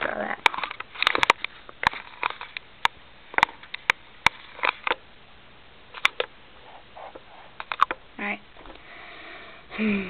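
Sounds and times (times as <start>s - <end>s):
marker scratching on paper: 6.6s - 7.6s.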